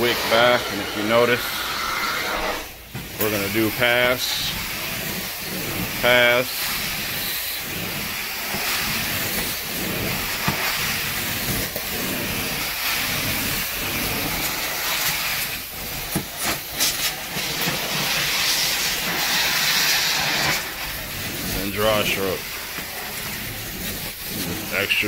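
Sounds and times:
extraction wand suction hiss: 0.0 - 25.0.

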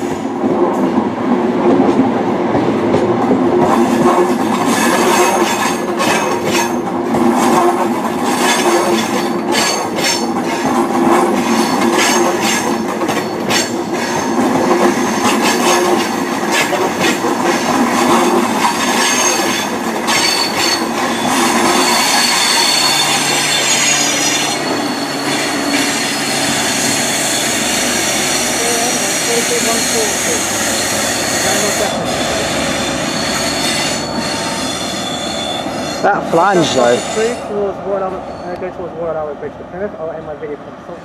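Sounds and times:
train wheels clicking over rail joints: 1.7 - 35.0
high-pitched wheel squeal: 8.3 - 10.7, 18.2 - 38.8.

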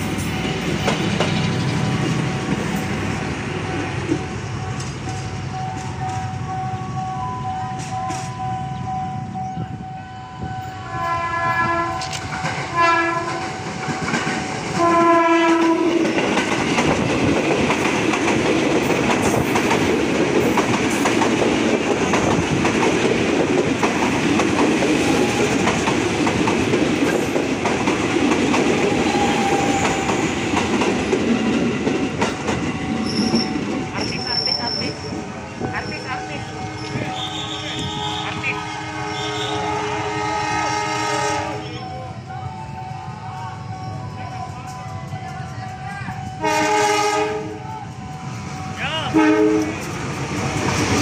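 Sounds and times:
train wheels rushing on rail: 0.0 - 51.0
train horn blasts: 10.5 - 13.6, 14.8 - 16.2, 36.0 - 41.8, 46.4 - 47.7, 49.1 - 49.8.

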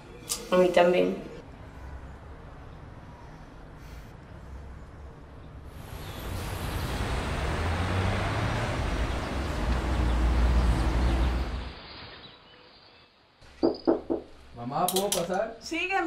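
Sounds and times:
cars and heavy vehicles passing: 1.2 - 12.3.

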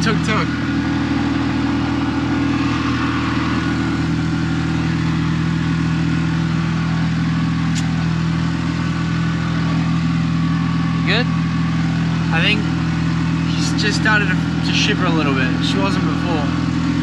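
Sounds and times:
road noise: 0.0 - 17.0
small engine droning: 0.0 - 17.0.

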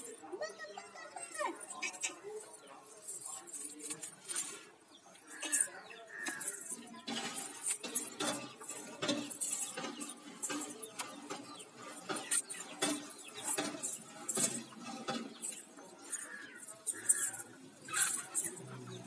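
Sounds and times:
anklet bells jingling: 5.4 - 19.0.

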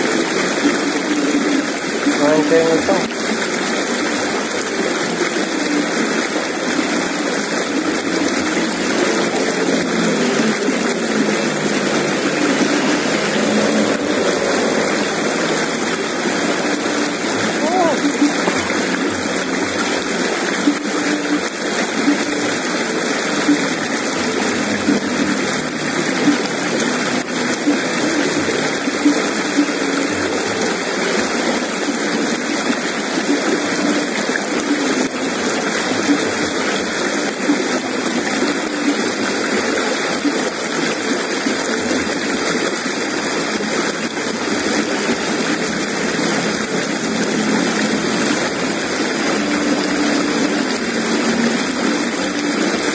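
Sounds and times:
river rushing over stones: 0.0 - 52.9.

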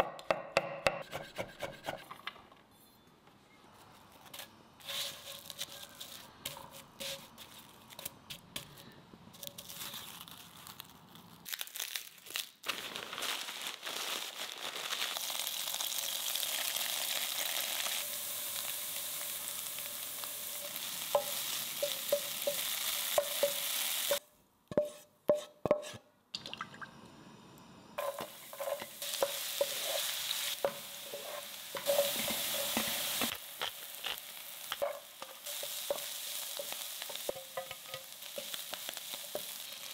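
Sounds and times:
food sizzling in oil: 14.8 - 24.2, 28.0 - 39.9.

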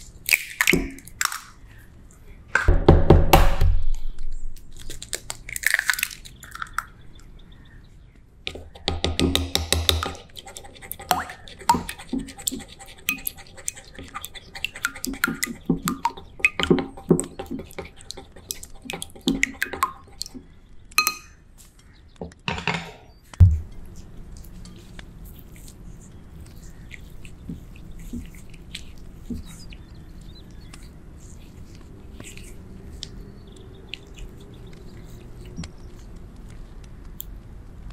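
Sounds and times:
wooden utensil beating eggs in bowl: 8.5 - 21.3, 24.4 - 36.2
loud thump: 23.4 - 23.7
wet handling sounds: 23.4 - 37.2.

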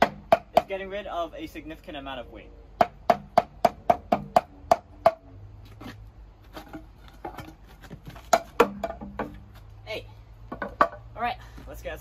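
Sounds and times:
hammer striking wood: 0.0 - 0.8, 2.8 - 5.3, 8.2 - 9.4, 10.5 - 11.0.

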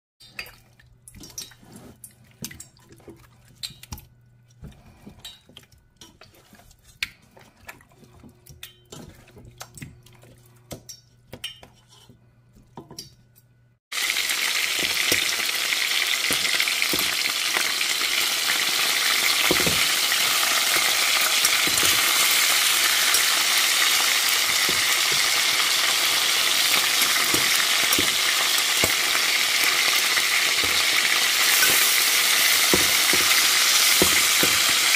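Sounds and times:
chicken sizzling in hot oil: 13.9 - 34.9.

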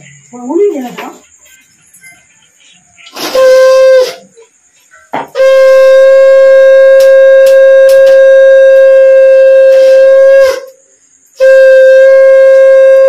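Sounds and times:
conch shell blast: 3.1 - 4.3, 5.3 - 10.8, 11.4 - 13.0.

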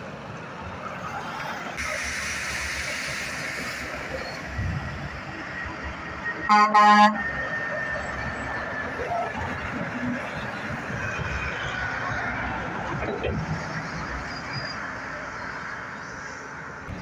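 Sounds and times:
highway traffic noise: 0.0 - 17.0
truck air horn toots: 6.5 - 7.3.

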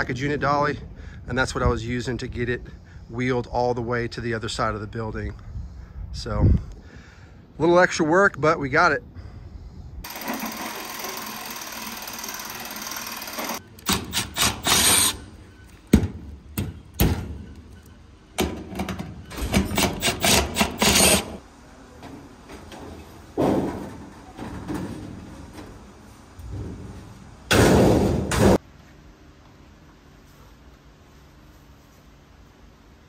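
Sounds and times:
short power tool bursts: 10.0 - 15.2.

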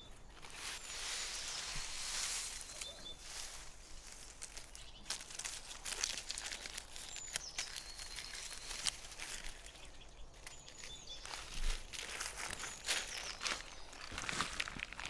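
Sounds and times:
dry palm fronds rustling: 0.0 - 15.0
sharp crackles and snaps: 4.0 - 15.0.

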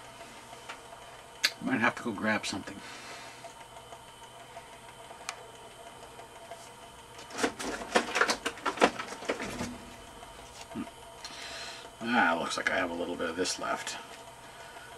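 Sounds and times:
small motor and gears running: 0.0 - 14.9
clattering and rustling: 7.2 - 10.7.

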